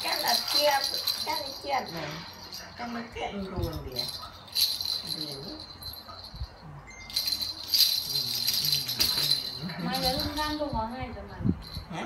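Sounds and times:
plastic toy rattle shaken: 0:00.0 - 0:02.7, 0:03.5 - 0:06.5, 0:07.1 - 0:10.8.

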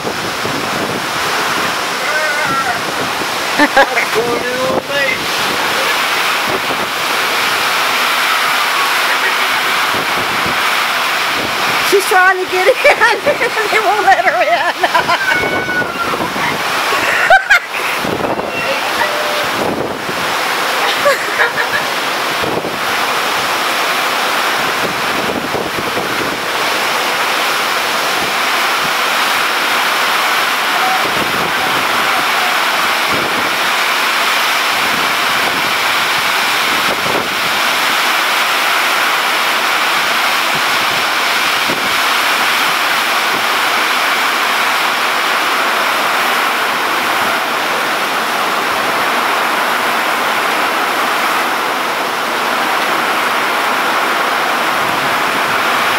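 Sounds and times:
wind buffeting microphone: 0:00.0 - 0:08.7, 0:09.7 - 0:23.8, 0:24.4 - 0:29.8, 0:30.8 - 0:38.1, 0:40.0 - 0:43.6
heavy rain downpour: 0:00.0 - 0:55.9.

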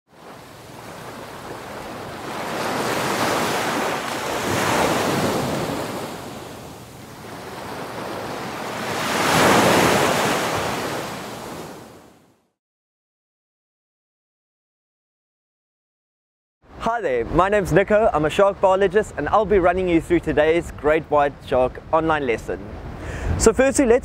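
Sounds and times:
rushing water whoosh: 0:00.7 - 0:11.9.

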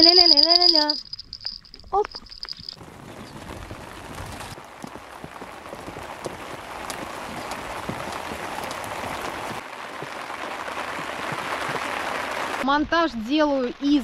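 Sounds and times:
steady rain falling: 0:02.4 - 0:12.7.

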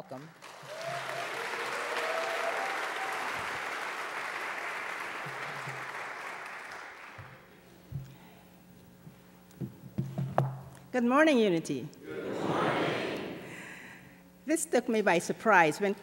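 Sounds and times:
congregation applauding: 0:00.3 - 0:07.5.

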